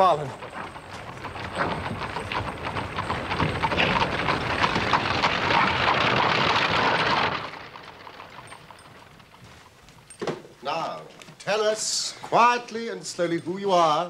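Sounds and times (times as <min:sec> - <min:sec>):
dense clatter of knocks: 0:00.0 - 0:10.6.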